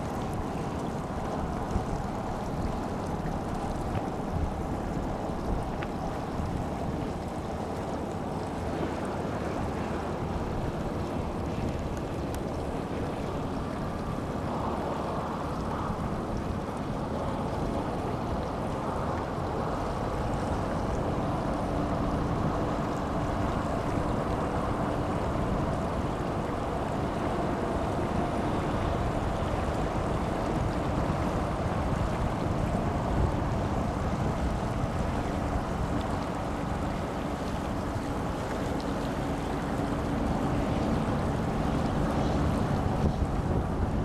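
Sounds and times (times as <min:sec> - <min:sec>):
boat motor hum: 0:00.0 - 0:44.0
wind and water rushing: 0:00.0 - 0:44.0.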